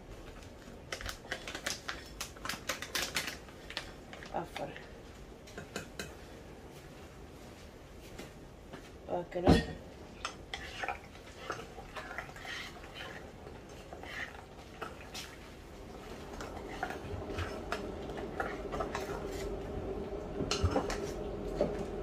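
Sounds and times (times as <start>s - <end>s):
faint steady hum: 0.0s - 22.0s
spoon clinking and scraping pot: 10.2s - 15.0s.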